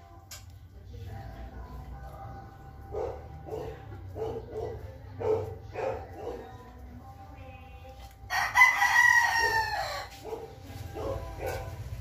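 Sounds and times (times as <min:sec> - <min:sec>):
rooster crowing: 0:08.3 - 0:10.6.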